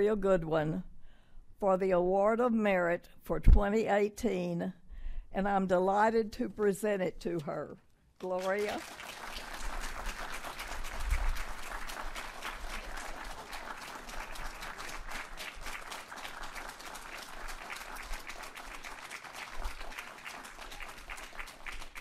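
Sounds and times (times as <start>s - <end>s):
audience applauding: 8.2s - 22.0s.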